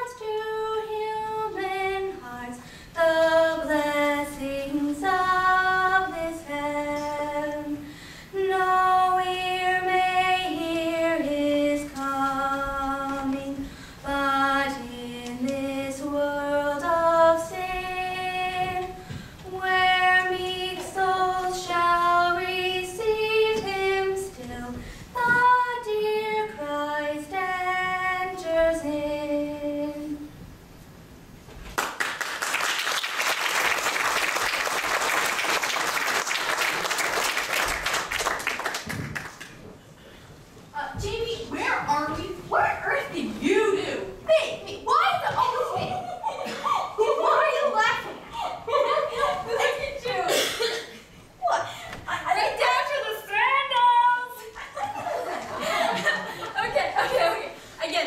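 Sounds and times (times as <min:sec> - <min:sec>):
girl singing a slow carol: 0:00.0 - 0:30.3.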